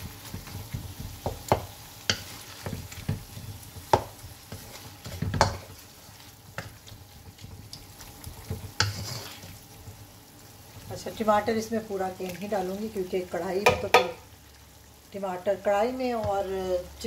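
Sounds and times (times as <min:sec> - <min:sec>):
spatula scraping frying pan: 0:00.0 - 0:10.0
meat sizzling softly: 0:00.0 - 0:17.0
spatula knocking against pan: 0:13.6 - 0:14.2.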